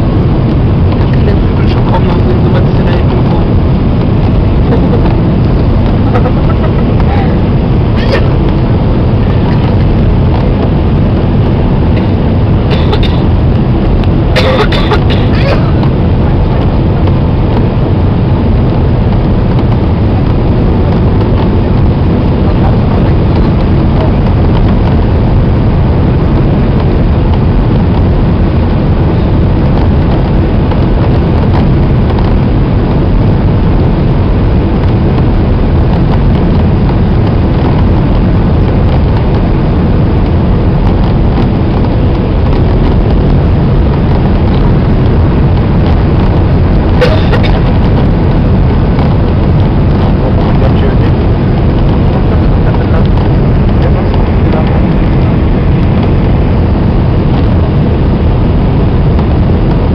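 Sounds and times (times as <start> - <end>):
jet cabin engine and airflow noise: 0.0 - 59.9.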